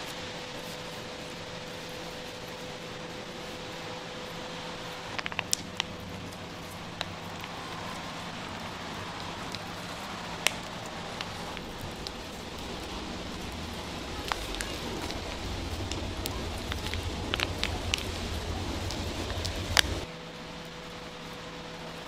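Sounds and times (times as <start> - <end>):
kitchen background hiss: 0.0 - 22.0.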